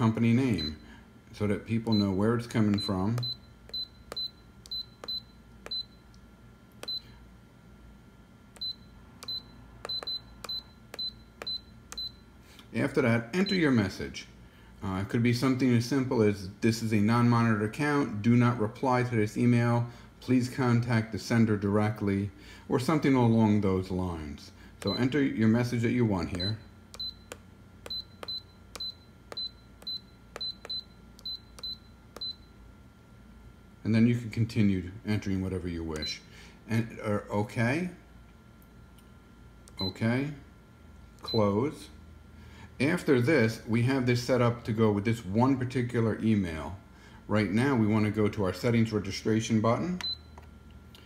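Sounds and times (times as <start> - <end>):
touchscreen key-press beeps: 1.8 - 6.1, 6.8 - 7.2, 8.6 - 12.2, 24.8 - 25.1, 26.3 - 32.5, 50.0 - 50.4
stylus tapping screen: 1.8 - 6.2, 6.8 - 7.1, 8.5 - 12.2, 24.8 - 25.1, 26.3 - 32.4.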